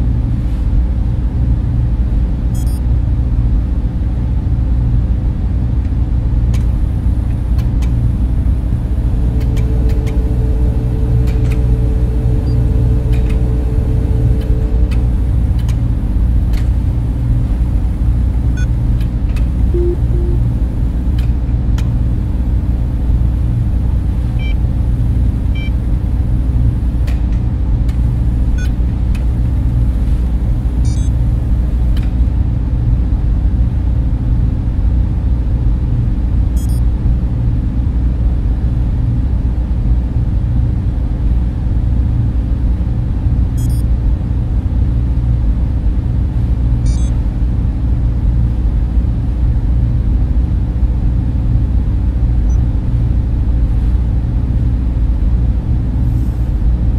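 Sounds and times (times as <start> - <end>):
low machine hum and rumble: 0.0 - 56.9
high electronic chirps: 19.8 - 20.6.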